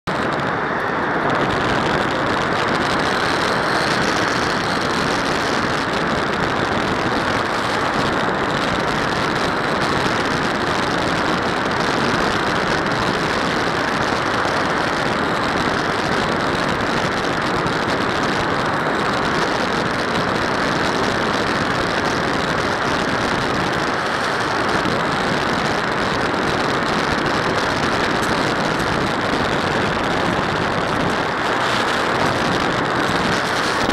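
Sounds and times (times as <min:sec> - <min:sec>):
airflow and propeller rush: 0:00.0 - 0:33.9.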